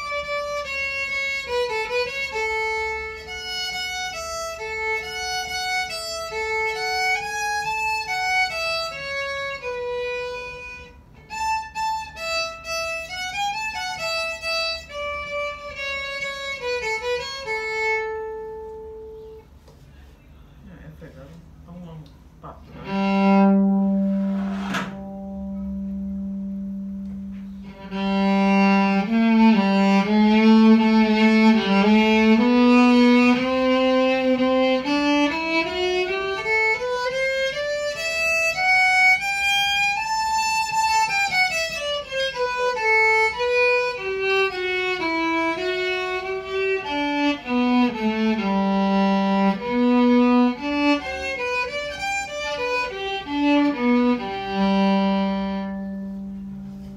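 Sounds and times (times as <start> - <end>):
electric violin bowed: 0.0 - 19.5, 22.4 - 56.9.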